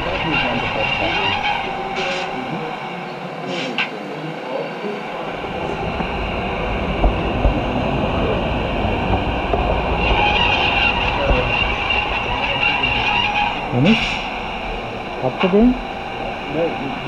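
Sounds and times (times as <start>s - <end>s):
high squeal: 0.0s - 17.0s
model train wheel rumble: 5.2s - 17.0s.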